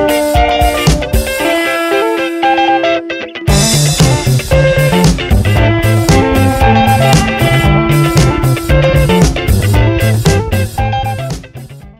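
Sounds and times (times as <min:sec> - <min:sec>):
guitar music: 0:00.0 - 0:11.9
bass line and beat: 0:03.5 - 0:11.7.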